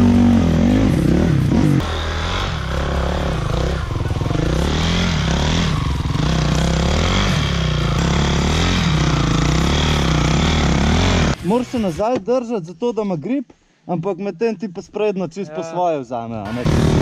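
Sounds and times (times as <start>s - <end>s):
dirt bike engine revving: 0.0s - 12.0s, 16.5s - 17.0s.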